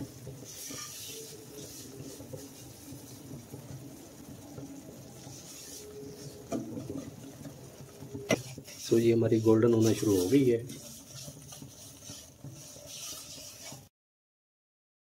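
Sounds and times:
spatula scraping pot: 0.0 - 13.9.

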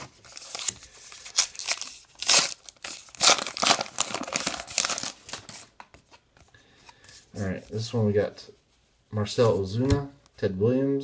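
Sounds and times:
wrapper tearing and crinkling: 0.0 - 5.8.

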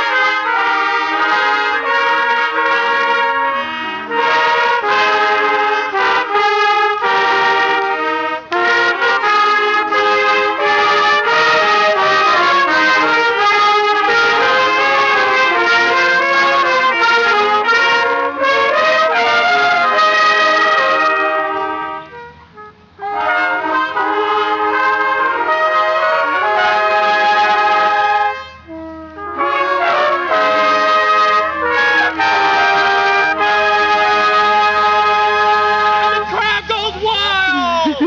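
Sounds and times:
trumpet ensemble playing: 0.0 - 38.0.

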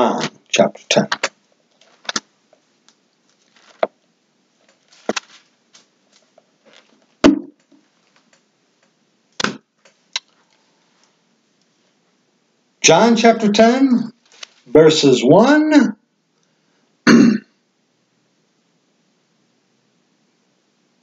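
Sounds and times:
paper rustling: 1.1 - 2.2, 3.2 - 3.9, 4.6 - 7.2, 14.2 - 14.7
book knocks and clicks: 9.4 - 9.6.

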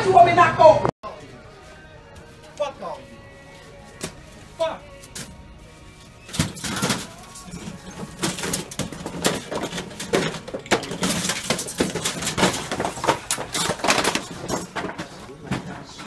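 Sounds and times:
merchandise clattering onto floor: 6.3 - 16.0.

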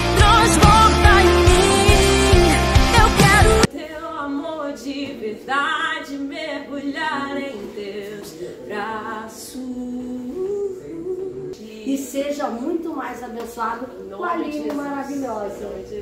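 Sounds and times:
woman singing a cappella: 0.0 - 12.2.

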